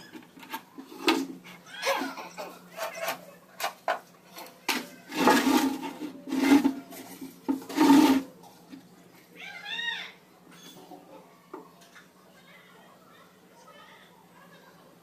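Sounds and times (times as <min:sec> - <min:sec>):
wooden pieces sliding on plywood: 0:04.8 - 0:08.3
loud scraping: 0:05.0 - 0:08.4.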